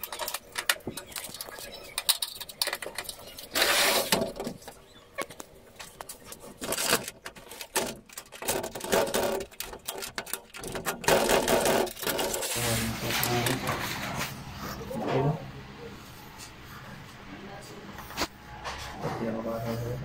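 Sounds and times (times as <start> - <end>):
loud scraping bursts: 3.4 - 4.4, 6.6 - 14.2.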